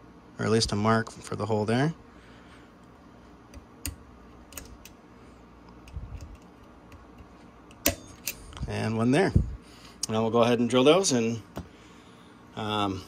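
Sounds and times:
center punch clicking: 3.5s - 5.0s, 5.8s - 8.4s.

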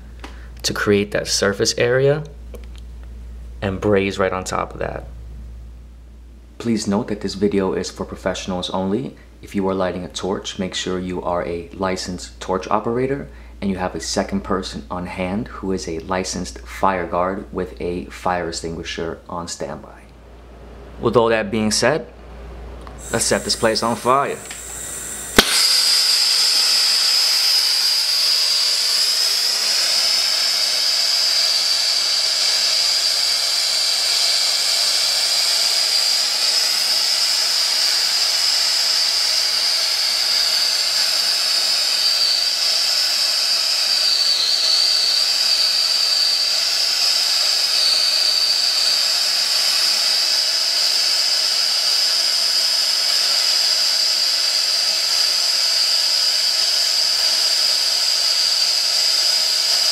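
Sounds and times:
torch flame rushing: 23.0s - 29.0s.

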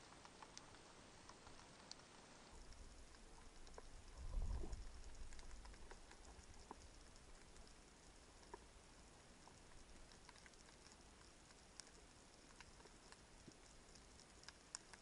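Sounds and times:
small underwater clicks and crackles: 0.0s - 15.0s
underwater low rumble: 2.6s - 10.2s.

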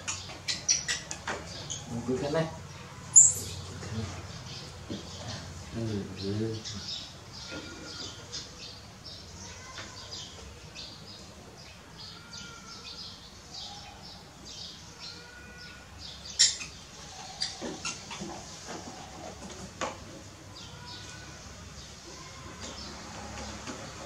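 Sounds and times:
animal chirps and squeaks: 0.0s - 2.0s, 3.1s - 3.7s, 16.3s - 19.3s.

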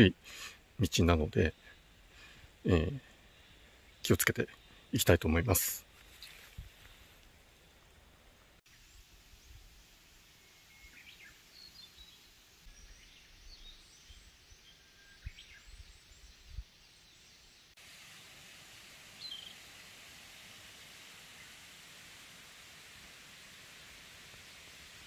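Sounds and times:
low hiss: 0.0s - 25.0s
small birds chirping: 10.4s - 17.8s, 19.1s - 19.9s.

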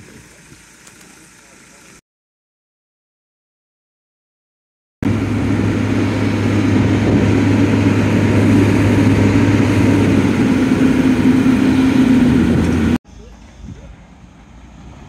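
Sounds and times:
crane diesel engine humming: 5.0s - 15.0s.

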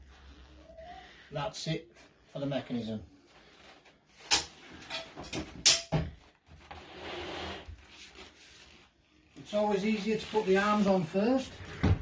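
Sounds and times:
furniture frame scraping: 6.6s - 8.6s.

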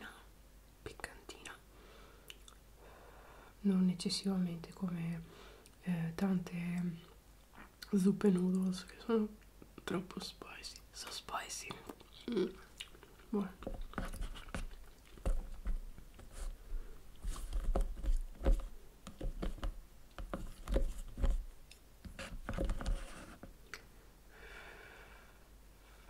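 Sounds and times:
soft breathy hiss: 0.0s - 12.8s, 16.2s - 17.5s, 23.5s - 26.0s.

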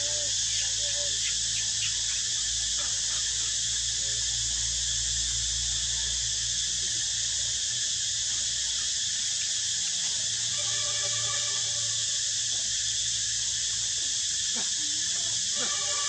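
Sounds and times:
steady high hiss: 0.0s - 16.0s.

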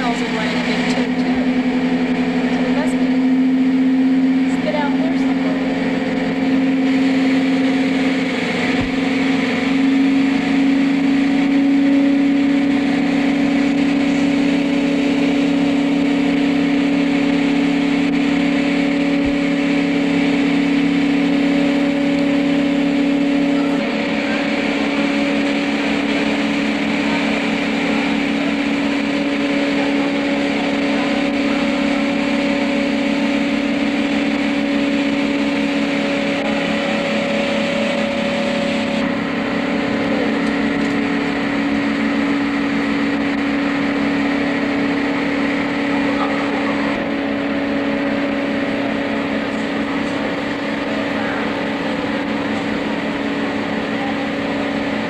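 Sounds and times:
machinery mechanical drone: 0.0s - 55.0s.

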